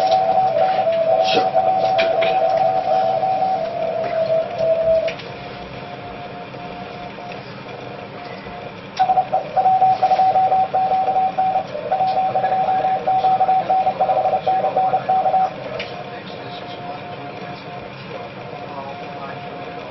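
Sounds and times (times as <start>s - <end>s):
morse code beep tone: 0.0s - 5.2s, 9.0s - 15.6s
radio band noise hiss: 0.0s - 19.9s.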